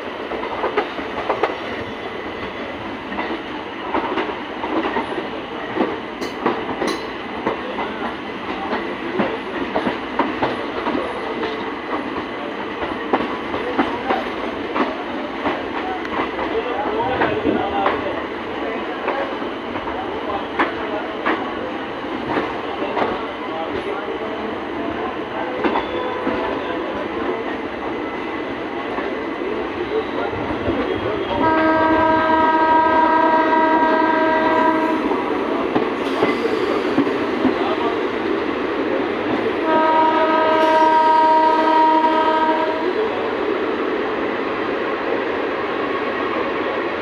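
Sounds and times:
passing express train coaches: 0.0s - 47.0s
train rumbling and rattling: 0.0s - 47.0s
train horn blasts: 31.4s - 35.1s, 39.6s - 43.0s.

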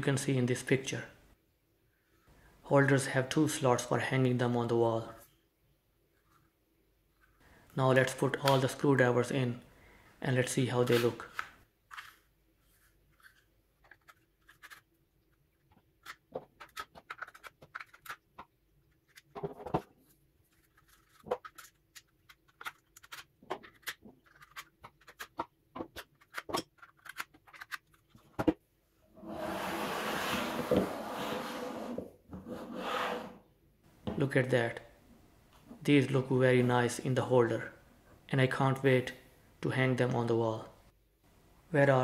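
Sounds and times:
scraping and rubbing: 11.9s - 28.3s, 29.2s - 33.4s.

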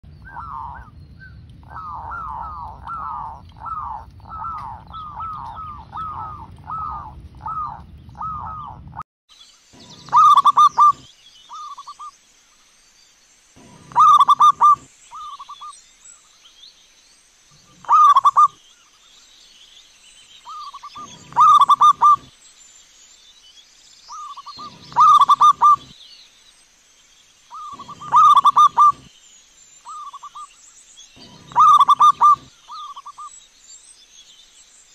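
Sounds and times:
dove cooing: 0.2s - 9.0s, 9.8s - 11.8s, 13.6s - 15.5s, 17.8s - 18.6s, 20.8s - 22.3s, 24.4s - 25.9s, 27.5s - 29.1s, 31.2s - 33.2s.

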